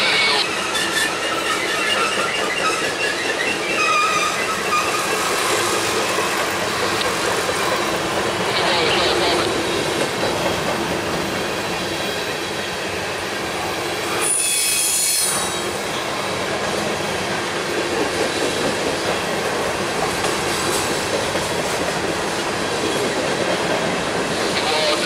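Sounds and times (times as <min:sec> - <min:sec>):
train wheels squealing: 0:00.0 - 0:07.0, 0:14.0 - 0:16.1
freight train rumbling past: 0:00.0 - 0:25.0.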